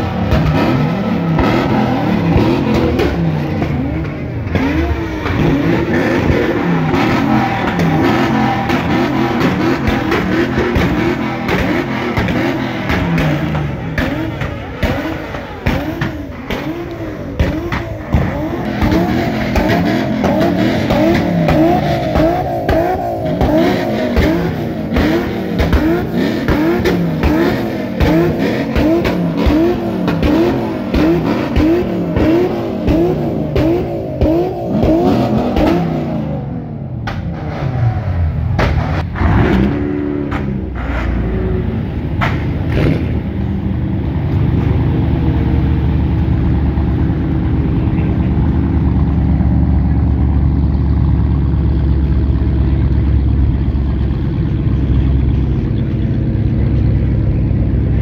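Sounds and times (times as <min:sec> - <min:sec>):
car engine revving: 0:00.0 - 0:58.0.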